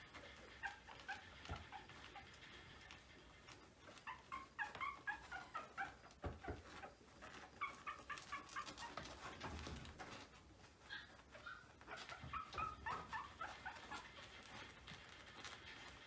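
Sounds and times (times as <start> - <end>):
puppies squeaking and whimpering: 0.0 - 16.0.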